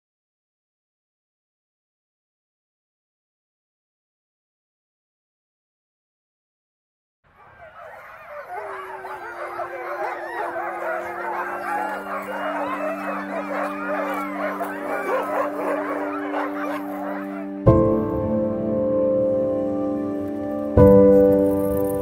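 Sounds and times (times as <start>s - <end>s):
huskies howling and yipping: 7.3s - 18.0s.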